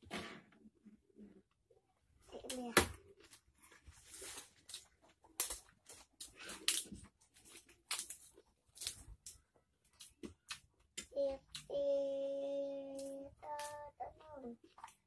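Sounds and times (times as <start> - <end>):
crunching leafy greens: 3.5 - 10.6.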